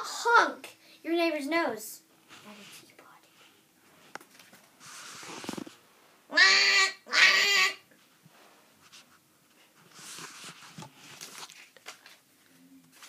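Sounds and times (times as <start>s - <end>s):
soft rustling: 2.2s - 6.1s, 8.0s - 13.0s.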